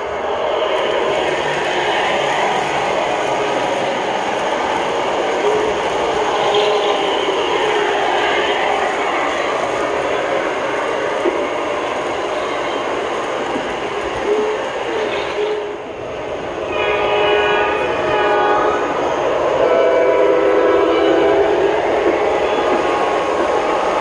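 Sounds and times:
model train running on track: 0.0 - 24.0
train horn blasts: 6.4 - 8.0, 16.7 - 22.8.

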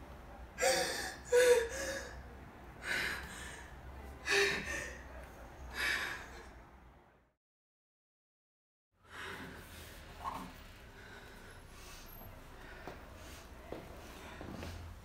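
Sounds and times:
young woman sobbing: 0.6 - 2.2.

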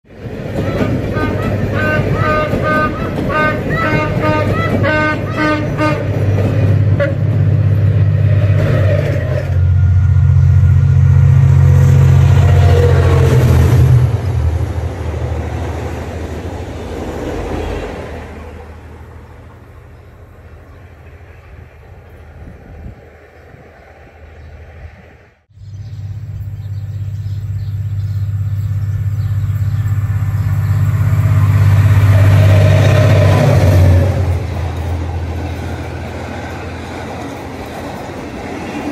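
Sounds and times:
diesel locomotive passing: 0.0 - 38.9
short high train toots: 0.6 - 6.2.

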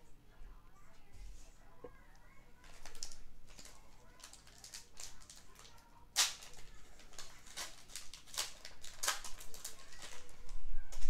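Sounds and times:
foil wrapper crinkling: 2.2 - 11.0.

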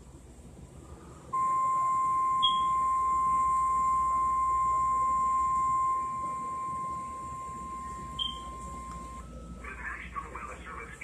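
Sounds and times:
steady alarm tone: 1.3 - 9.9.

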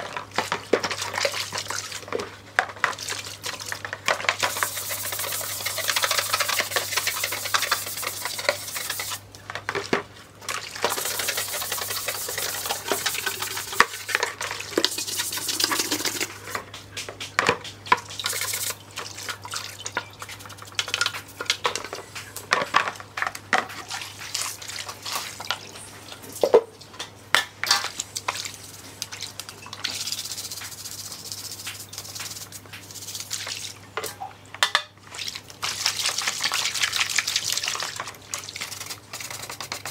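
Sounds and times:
water sloshing and dripping: 0.0 - 17.0, 17.6 - 22.4, 23.0 - 27.1, 27.7 - 39.1
stiff brush scrubbing plastic: 2.9 - 9.2, 10.7 - 18.8, 38.4 - 39.9.

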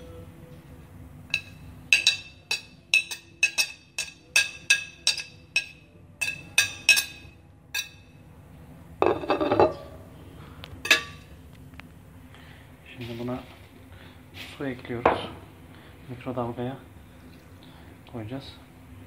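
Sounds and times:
ceramic scrape: 9.0 - 10.0
plate clinking against bowl: 9.0 - 10.0.

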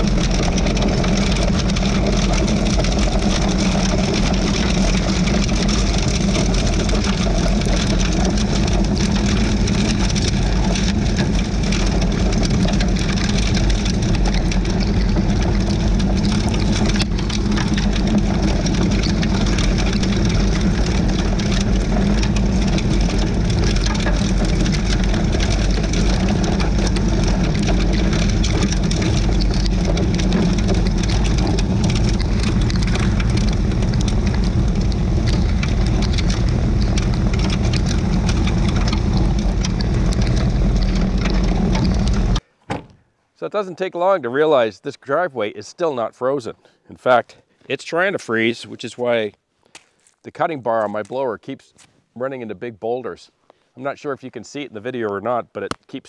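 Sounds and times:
diesel tractor engine running: 0.0 - 42.4
snow blower churning snow: 0.0 - 42.4.

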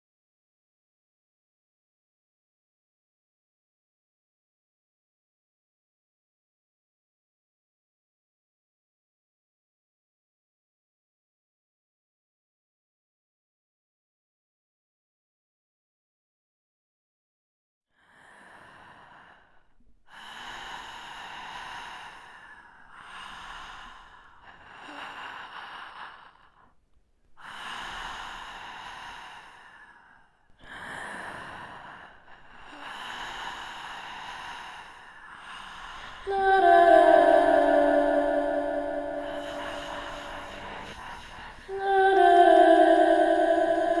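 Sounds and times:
person breathing heavily: 27.4 - 44.0
sustained music chord: 36.3 - 40.8, 41.7 - 44.0.

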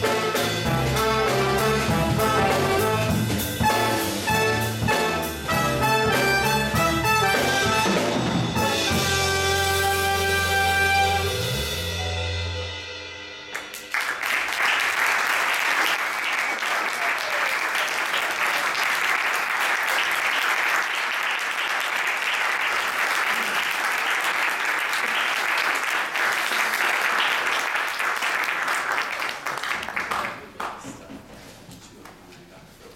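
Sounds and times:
audience applauding: 13.5 - 31.1.

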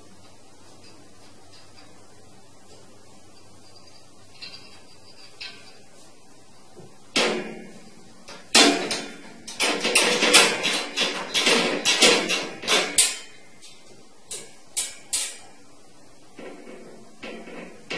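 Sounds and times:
wire cage door rattling: 7.2 - 13.4, 14.3 - 15.6, 16.4 - 17.9.

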